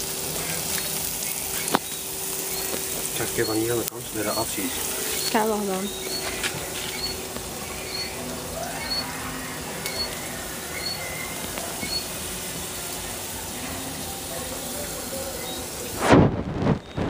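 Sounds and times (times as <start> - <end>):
wood burning in a stove: 0.0 - 17.0
bird chirping: 0.4 - 12.1, 15.2 - 15.7.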